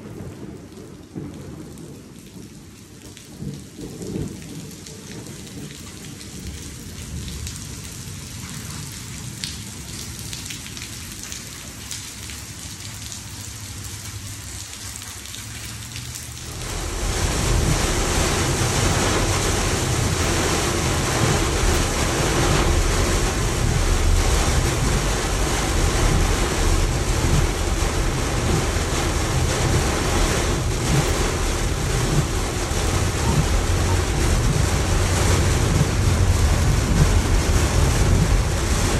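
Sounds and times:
heavy rain hissing on patio: 0:00.0 - 0:38.9
heavy rain hitting a car: 0:00.0 - 0:38.9
road noise: 0:09.2 - 0:38.9.

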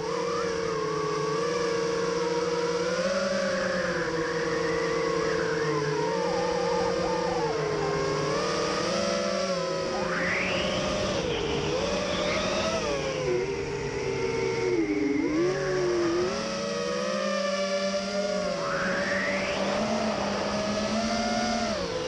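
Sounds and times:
drone motors whining: 0:00.0 - 0:22.0.

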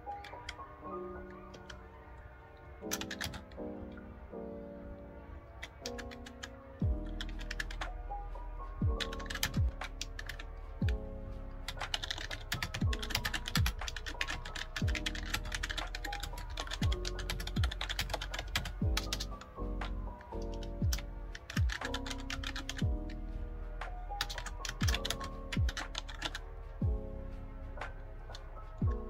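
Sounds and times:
fast keyboard typing: 0:02.8 - 0:03.6, 0:05.6 - 0:08.0, 0:08.8 - 0:11.0, 0:11.7 - 0:23.2, 0:24.0 - 0:26.4
background music with bass: 0:06.8 - 0:29.0.

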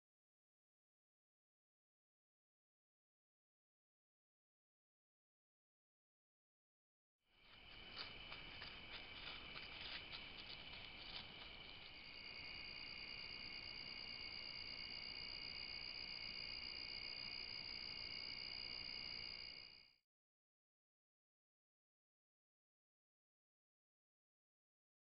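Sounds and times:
crackles in dry leaves: 0:07.4 - 0:12.9
crickets and insects trilling: 0:07.4 - 0:19.9.

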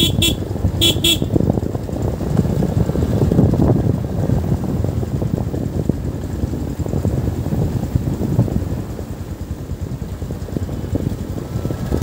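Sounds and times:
horn beeping: 0:00.0 - 0:01.4
motorcycle engine rumble: 0:00.0 - 0:12.0
wind noise: 0:00.0 - 0:12.0.

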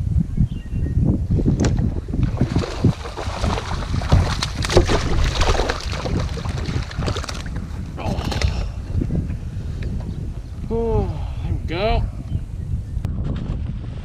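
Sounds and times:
wind buffeting microphone: 0:00.0 - 0:14.0
water slapping kayak hull: 0:01.6 - 0:08.8
fishing rod and reel rattling: 0:04.4 - 0:07.6.

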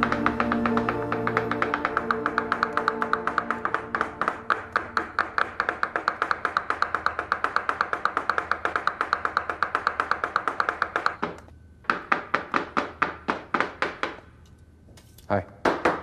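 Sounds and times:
knife chopping on cutting board: 0:00.0 - 0:11.4.

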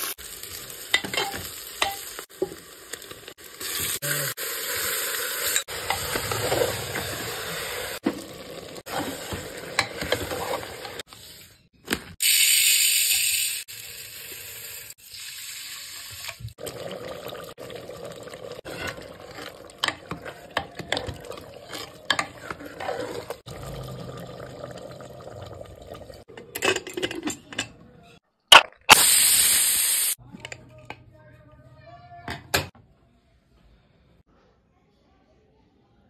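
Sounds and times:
pressure cooker hissing: 0:00.0 - 0:08.1, 0:12.2 - 0:16.5, 0:28.9 - 0:30.2
ladle scraping a pot: 0:08.9 - 0:11.0, 0:18.6 - 0:23.5.

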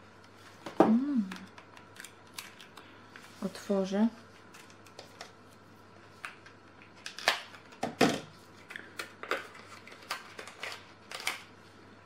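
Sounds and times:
packaging crinkling: 0:01.4 - 0:02.9, 0:06.2 - 0:07.8, 0:08.5 - 0:11.5.

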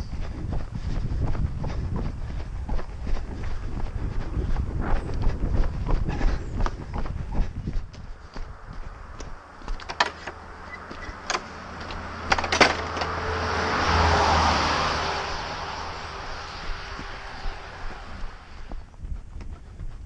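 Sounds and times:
car passing: 0:08.0 - 0:19.0.

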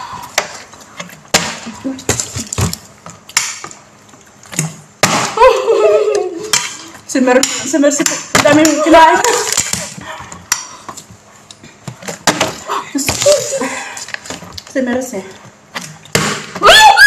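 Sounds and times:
loud voices: 0:16.6 - 0:17.0.

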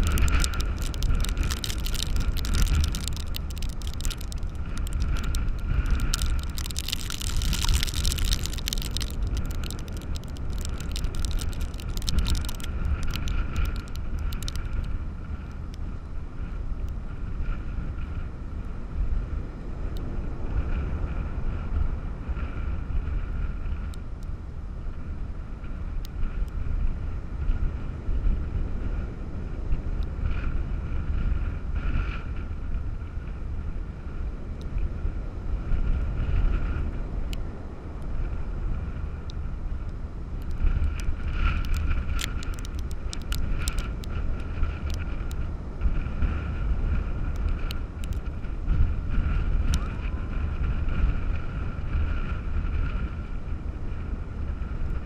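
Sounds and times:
sharp crackling ticks: 0:00.0 - 0:16.0, 0:23.6 - 0:24.3, 0:26.0 - 0:26.7, 0:35.7 - 0:53.2
wind buffeting microphone: 0:00.0 - 0:55.0.

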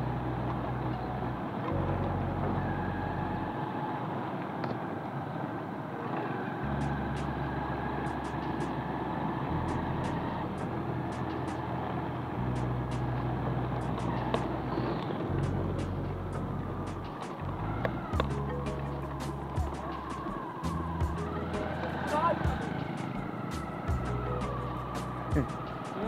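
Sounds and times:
road noise: 0:00.0 - 0:26.0
motorcycle engine running: 0:18.1 - 0:21.2.

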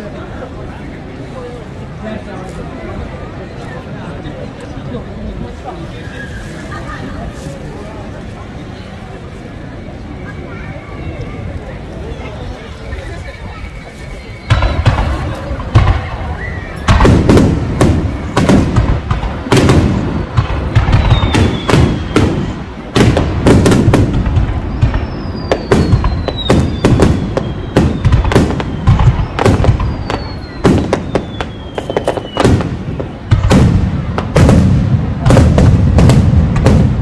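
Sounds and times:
firework whistles falling in pitch: 0:13.9 - 0:15.4, 0:20.9 - 0:22.6, 0:24.6 - 0:32.8
fireworks bangs and booms: 0:13.9 - 0:37.0.

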